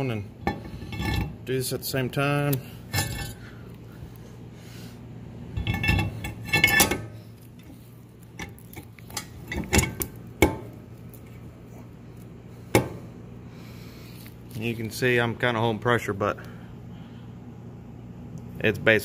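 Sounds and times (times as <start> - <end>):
metal knocks on wheel hub: 9.6 - 10.7.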